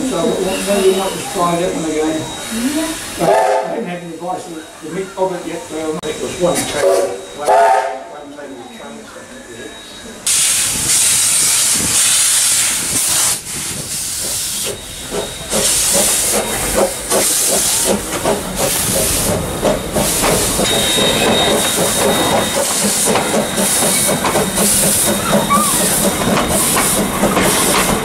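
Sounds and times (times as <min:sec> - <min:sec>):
steam hissing: 0:00.0 - 0:07.9, 0:10.2 - 0:28.0
rapid knocking of train: 0:10.7 - 0:28.0.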